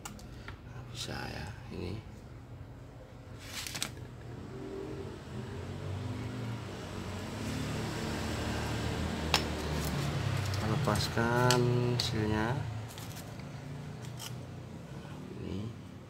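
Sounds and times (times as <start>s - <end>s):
vehicle engine humming: 4.1s - 15.7s.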